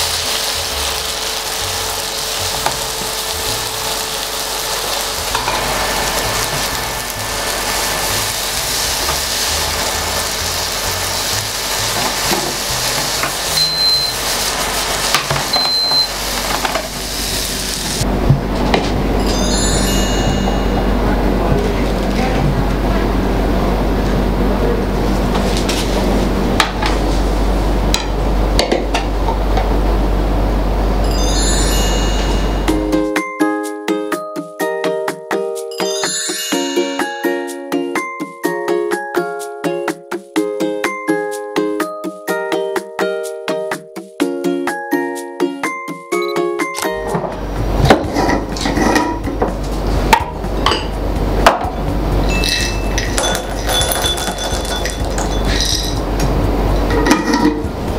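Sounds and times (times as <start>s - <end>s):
steady hiss: 0.0s - 15.5s
bright chime: 19.2s - 21.2s, 31.0s - 33.0s, 35.7s - 38.5s, 52.2s - 53.3s
pan and bowl clinking on plate: 52.3s - 56.0s, 56.8s - 57.7s
glass jar knocking on stone: 52.4s - 56.0s.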